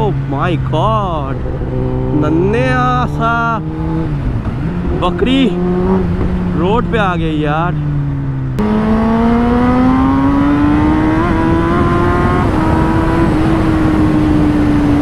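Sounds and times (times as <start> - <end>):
motorcycle engine under way: 0.0 - 7.0, 7.7 - 15.0
wind rushing: 8.7 - 15.0.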